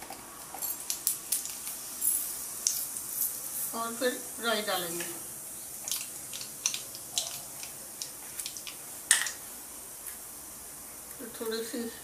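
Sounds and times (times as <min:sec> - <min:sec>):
seeds popping in hot oil: 0:00.0 - 0:03.8, 0:04.8 - 0:10.2
faint oil sizzle: 0:00.1 - 0:12.0.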